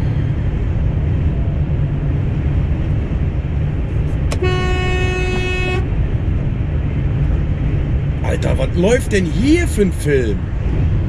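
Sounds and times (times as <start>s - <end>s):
engine and road rumble: 0.0s - 11.0s
vehicle horn blast: 4.3s - 6.0s.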